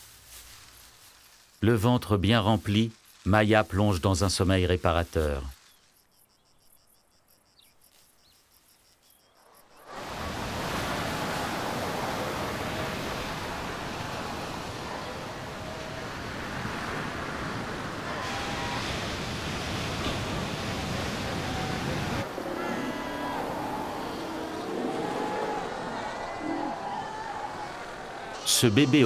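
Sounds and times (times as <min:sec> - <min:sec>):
faint insect chirping: 0:00.0 - 0:18.8
surf breaking over rocks: 0:09.9 - 0:29.0.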